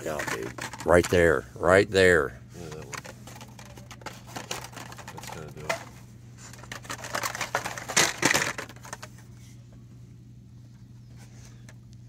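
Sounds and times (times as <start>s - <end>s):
plastic packs rustling: 0.0s - 1.1s, 2.6s - 9.2s.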